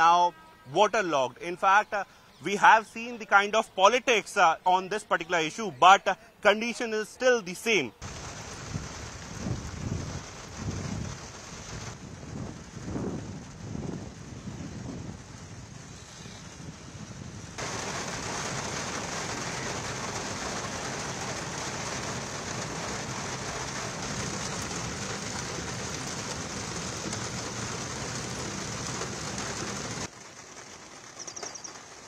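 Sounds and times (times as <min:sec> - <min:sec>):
heavy rain on wet road: 0:08.0 - 0:32.0.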